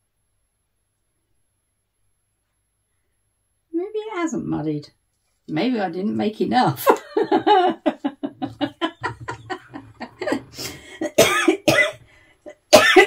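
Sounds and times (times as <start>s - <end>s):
woman coughing: 8.8s - 12.0s, 12.6s - 13.0s.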